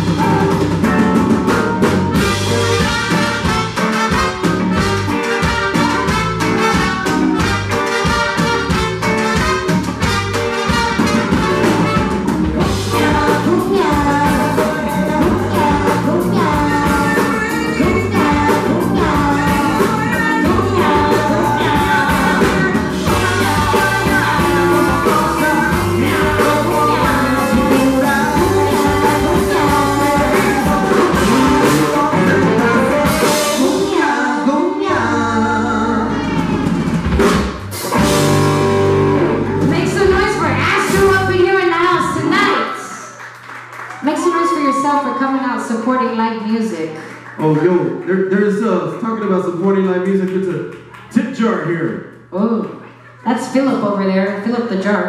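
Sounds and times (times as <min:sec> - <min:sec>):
live rock band playing: 0:00.0 - 0:46.2
trumpets: 0:01.6 - 0:13.2
woman singing: 0:12.6 - 0:36.6
man singing: 0:12.9 - 0:36.3.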